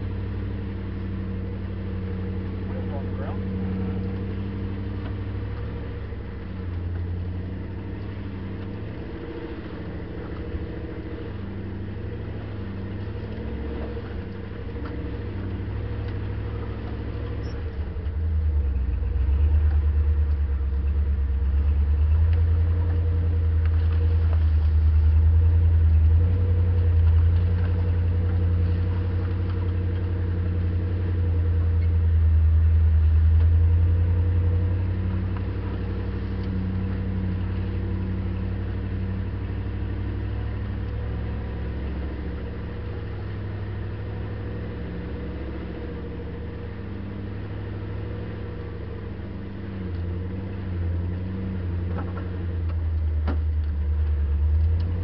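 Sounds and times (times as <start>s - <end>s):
vehicle engine low rumble: 0.0s - 55.0s.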